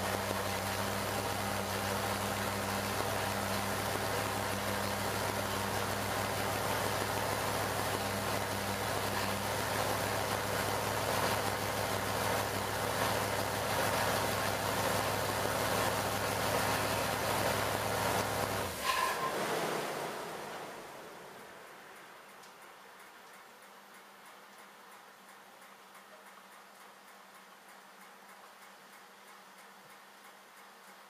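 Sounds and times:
engine running on dyno: 0.0s - 22.0s.

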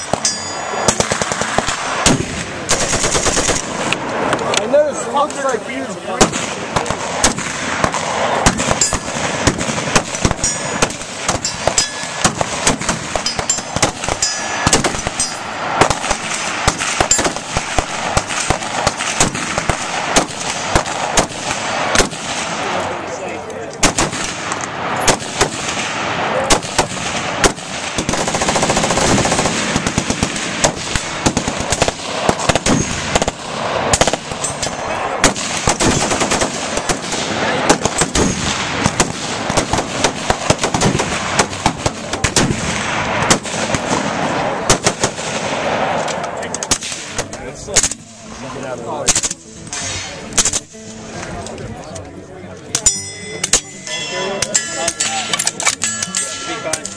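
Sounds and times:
rifle shots: 0.0s - 4.6s, 6.1s - 23.0s, 23.8s - 48.1s, 49.1s - 50.7s
automatic gunfire bursts: 0.9s - 3.9s, 6.2s - 22.7s, 23.8s - 25.9s, 26.5s - 34.4s, 35.2s - 45.6s.

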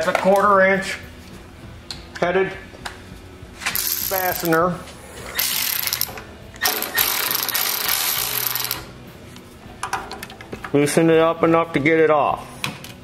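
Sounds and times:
socket ratchet clicking: 3.8s - 4.5s, 5.4s - 8.9s.

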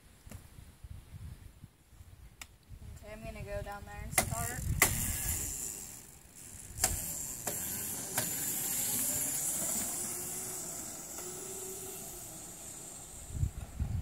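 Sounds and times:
steady hissing noise: 0.0s - 14.0s
electric dirt bike hum: 4.1s - 14.0s
sharp clicks: 6.7s - 8.4s.

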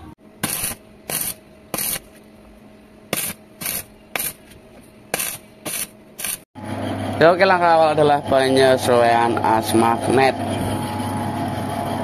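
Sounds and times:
welding arc bursts: 0.4s - 2.1s, 3.1s - 4.4s, 5.1s - 6.5s.

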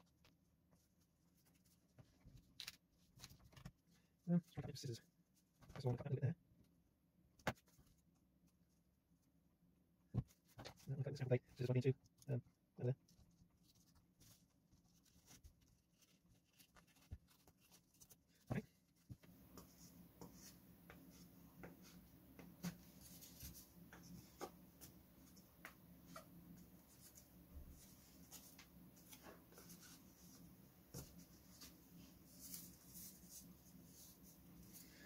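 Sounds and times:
covering material rustling: 13.1s - 19.4s.

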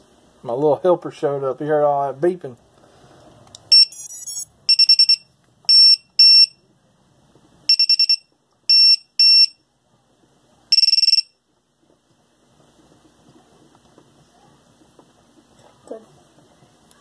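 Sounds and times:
high-pitched buzzer beeping: 3.7s - 6.6s, 7.7s - 9.6s, 10.7s - 11.4s.

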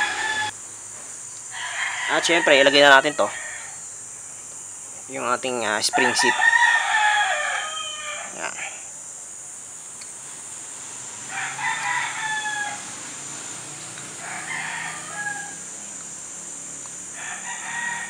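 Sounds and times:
rooster crowing: 0.0s - 0.6s, 1.5s - 3.8s, 5.8s - 8.9s, 11.1s - 18.0s.

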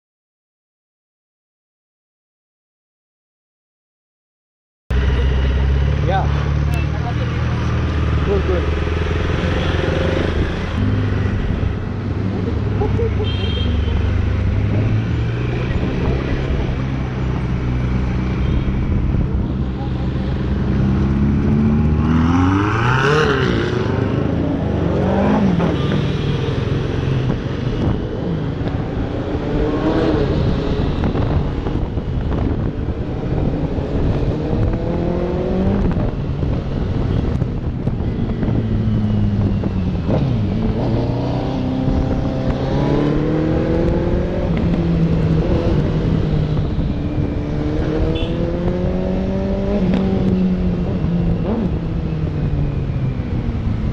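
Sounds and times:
motorcycle engine accelerating: 28.8s - 53.9s
sports car revving: 40.1s - 52.3s.

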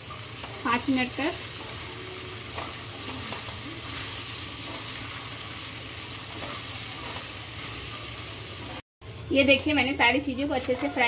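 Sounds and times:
food sizzling in a metal pan: 0.0s - 11.0s.

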